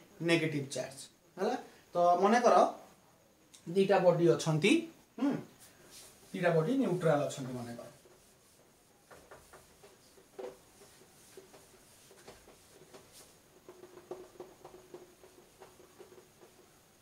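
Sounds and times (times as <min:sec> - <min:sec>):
duster rubbing on whiteboard: 0:05.6 - 0:17.0.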